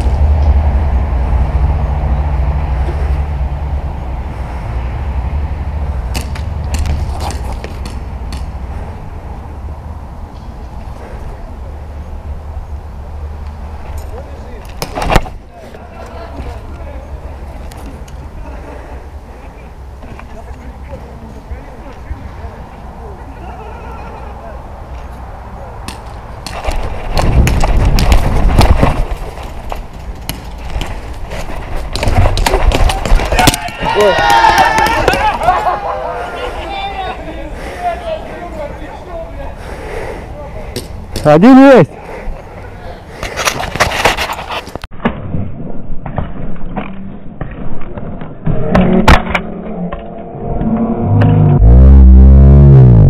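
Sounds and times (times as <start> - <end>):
low drone: 0.0 - 6.8, 48.4 - 53.0.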